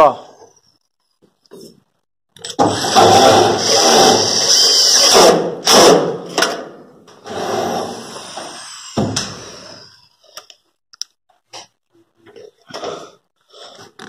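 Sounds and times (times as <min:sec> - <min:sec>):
power drill driving a screw: 0:02.5 - 0:06.0.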